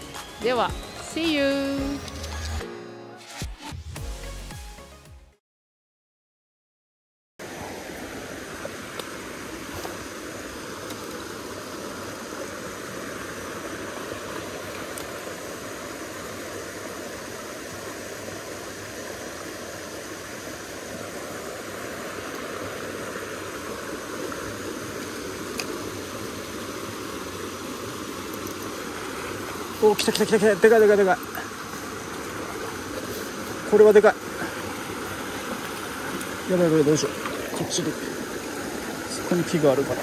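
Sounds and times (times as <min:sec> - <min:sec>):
stream rushing over rocks: 0:07.4 - 0:40.0.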